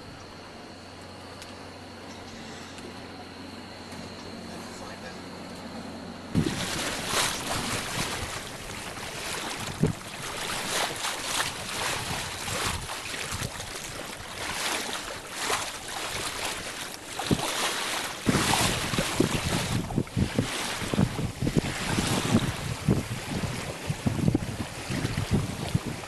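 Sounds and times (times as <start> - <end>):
water splashing along boat hull: 6.3 - 26.0
wind buffeting microphone: 6.3 - 26.0.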